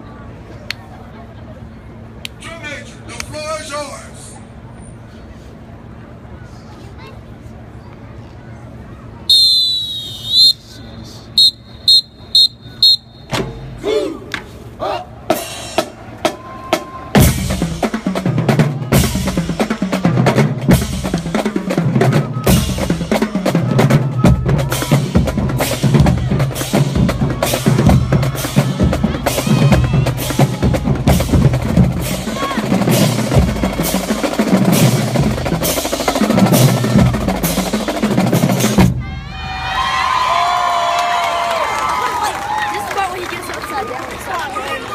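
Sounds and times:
voices: 21.3 - 39.3, 41.8 - 44.9.

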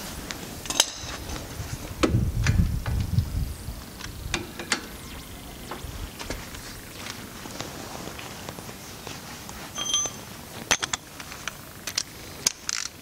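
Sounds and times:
metal tools clinking on bolts: 0.6 - 1.2, 9.7 - 11.1.

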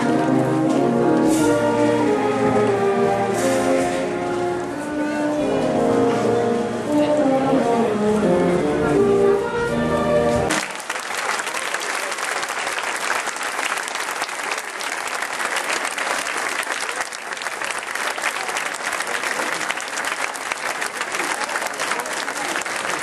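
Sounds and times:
music: 0.0 - 10.5
crowd applauding: 10.5 - 23.0.

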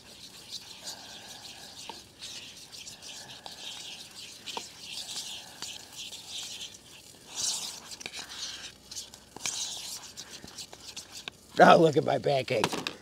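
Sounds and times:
utensil stirring batter in bowl: 0.0 - 12.6.

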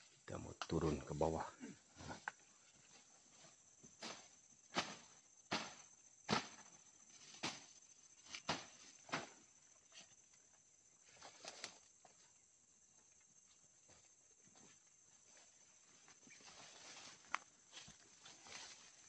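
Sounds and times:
footsteps on forest floor: 13.5 - 19.0.

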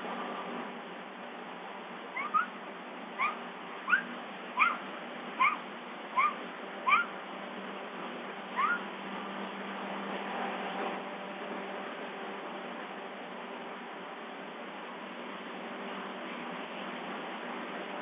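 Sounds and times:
bobcat meowing: 2.2 - 2.5, 5.4 - 5.6, 6.2 - 7.1, 8.6 - 8.8.

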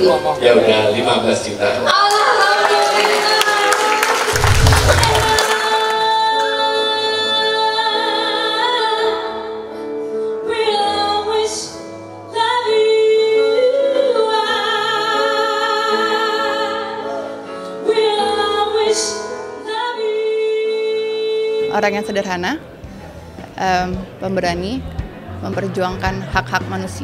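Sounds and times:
woman singing with vibrato: 2.0 - 9.4
band with keyboard: 22.0 - 27.0.

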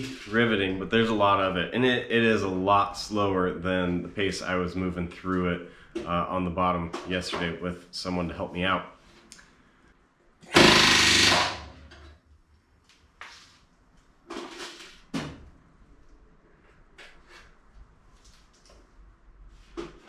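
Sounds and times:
pneumatic rivet gun hammering: 10.5 - 11.8.

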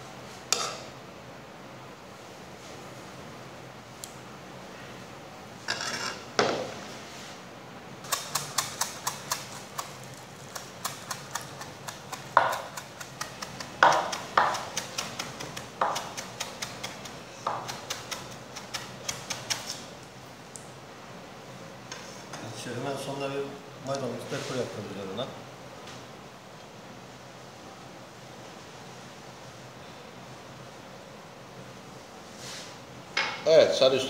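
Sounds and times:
knife scraping board: 0.5 - 0.8, 5.7 - 6.5, 8.1 - 19.8
knife chopping on cutting board: 8.1 - 19.8.

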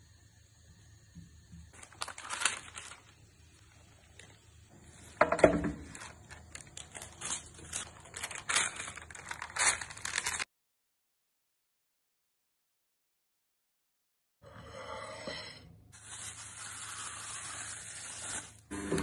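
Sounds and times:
baking paper rustling: 1.8 - 10.5, 16.0 - 19.0.

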